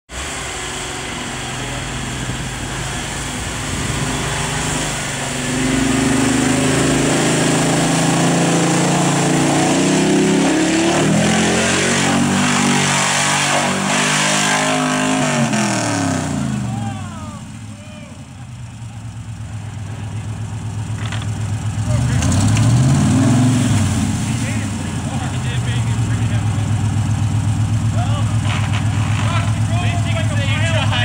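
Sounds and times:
engine revving hard: 0.2 - 17.1, 21.8 - 26.8.

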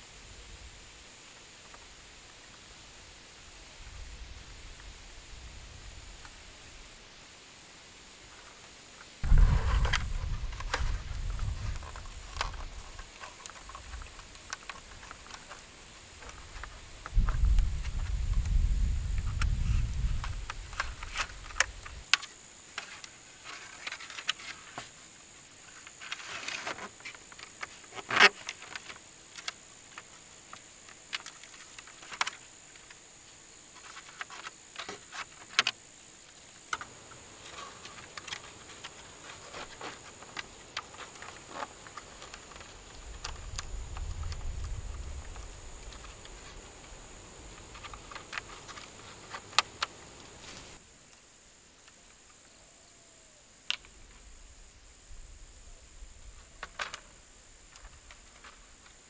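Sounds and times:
high insect drone: 0.0 - 59.0
bamboo poles clicking and tapping: 9.8 - 25.0, 25.6 - 33.0, 33.8 - 52.4, 53.6 - 54.0, 56.5 - 59.0.

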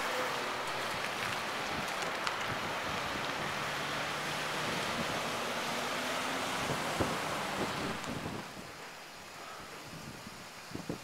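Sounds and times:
wind buffeting microphone: 0.8 - 8.9, 9.8 - 11.0.

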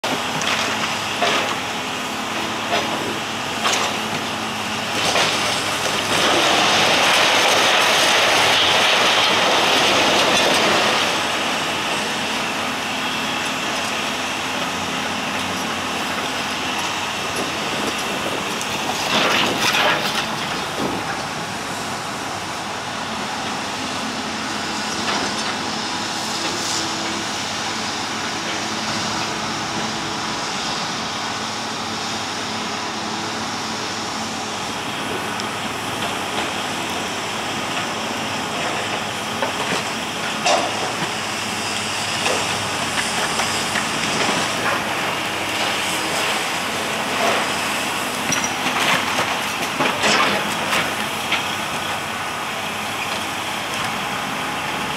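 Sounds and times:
excavator engine running: 0.0 - 54.9
rubble crashing and sliding: 4.9 - 11.4.

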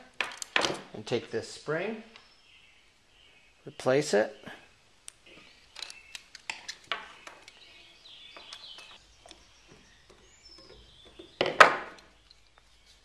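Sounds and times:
small metal clicks and scrapes: 5.7 - 9.4.

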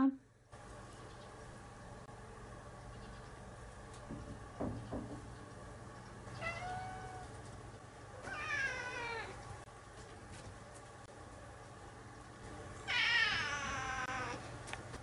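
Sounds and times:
cat meowing: 6.4 - 7.3, 8.2 - 9.4, 12.9 - 14.4.

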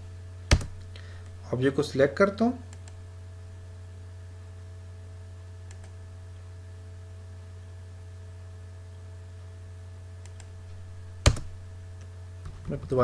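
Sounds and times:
low electrical hum: 0.0 - 13.0
computer keys clicking: 0.5 - 0.9, 2.7 - 3.0, 5.6 - 6.0, 10.2 - 10.6.

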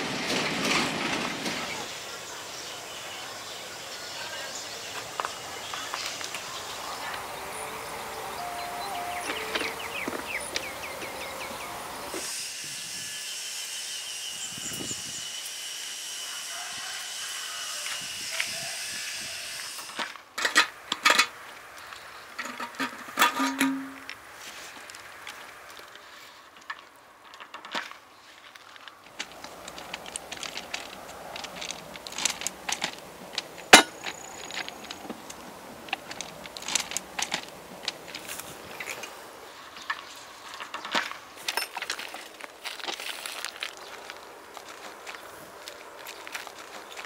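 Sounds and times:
knocks clanks and rattles: 0.0 - 1.8, 22.4 - 24.1
footsteps on ballast: 21.5 - 39.2, 39.9 - 47.0.

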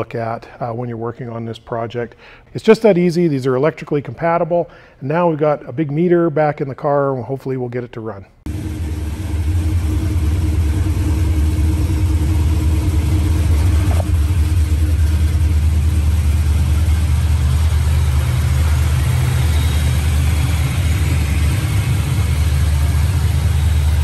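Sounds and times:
car engine idling: 8.5 - 24.0.

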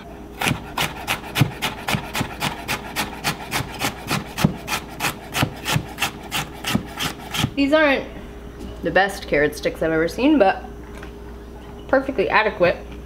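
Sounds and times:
knife chopping on wooden board: 0.4 - 7.6.

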